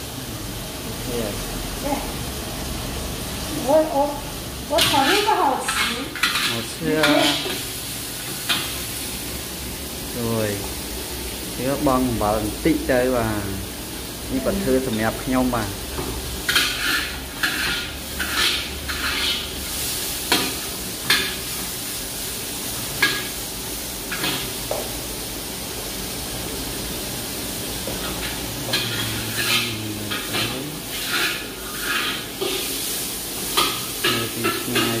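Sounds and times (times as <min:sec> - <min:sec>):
steady sizzle: 0:00.0 - 0:35.0
metal spatula scraping a wok: 0:04.8 - 0:07.6, 0:16.4 - 0:21.4, 0:28.0 - 0:35.0.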